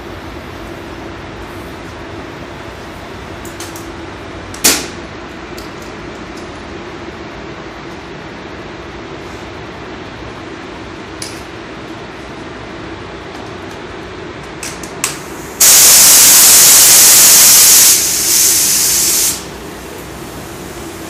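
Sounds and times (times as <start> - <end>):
paint spray gun hissing: 15.6 - 19.5.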